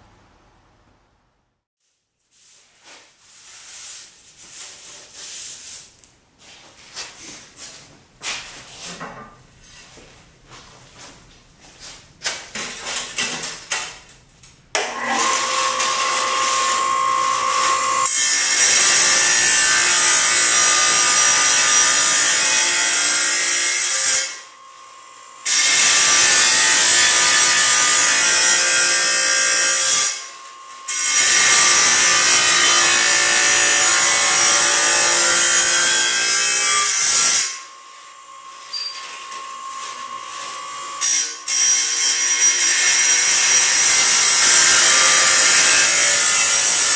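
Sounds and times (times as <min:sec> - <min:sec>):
table saw whining: 0:14.8 - 0:46.9
saw grinding through ceramic tile: 0:15.0 - 0:24.5, 0:25.4 - 0:37.7, 0:38.5 - 0:46.9.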